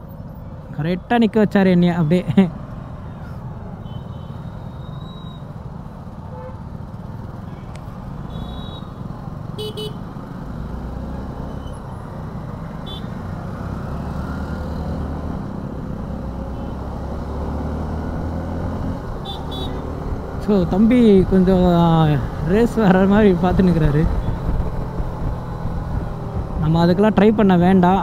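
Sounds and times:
road traffic: 0:00.0 - 0:28.0
vehicle horn beeps: 0:03.8 - 0:05.5, 0:08.3 - 0:09.0, 0:09.6 - 0:10.0, 0:19.2 - 0:19.8.

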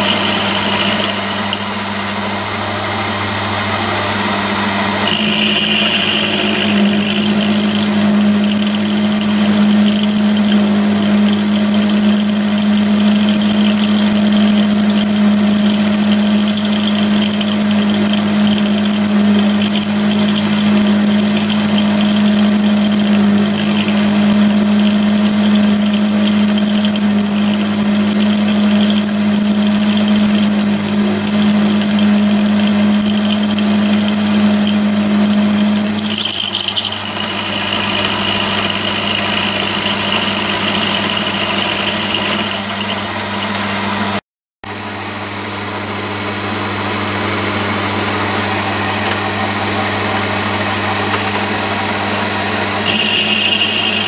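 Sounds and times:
milling motor humming: 0:00.0 - 0:54.0
brief high whine: 0:47.5 - 0:54.0.

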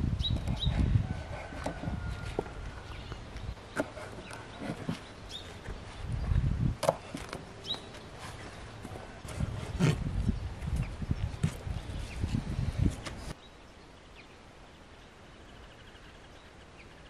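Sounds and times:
bird chirping: 0:00.2 - 0:06.5, 0:07.1 - 0:12.4.

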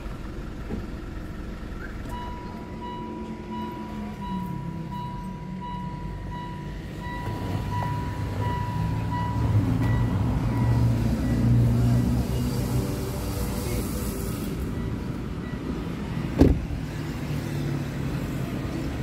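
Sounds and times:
low traffic rumble: 0:00.0 - 0:19.0
dashboard warning chime beeping: 0:02.0 - 0:12.3, 0:14.6 - 0:16.4.

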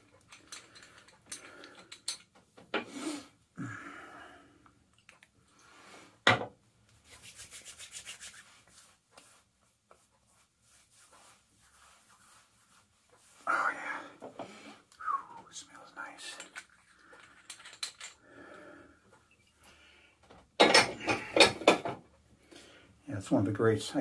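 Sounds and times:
palms rubbing on skin: 0:07.0 - 0:14.0.

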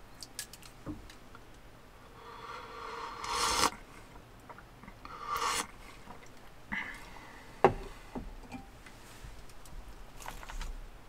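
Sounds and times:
slurping soup: 0:02.2 - 0:03.8, 0:05.1 - 0:05.8.

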